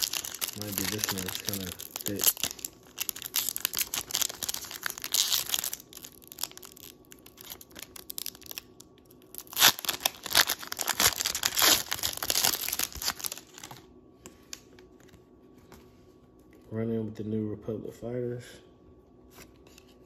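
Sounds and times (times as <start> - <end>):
foil wrapper crinkling: 0.0 - 13.9.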